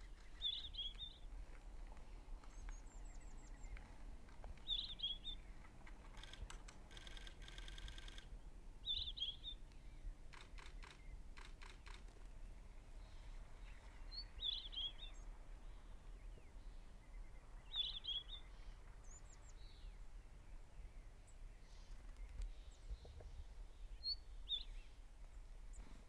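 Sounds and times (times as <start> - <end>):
rapid clicks: 5.8 - 8.3, 10.3 - 12.2.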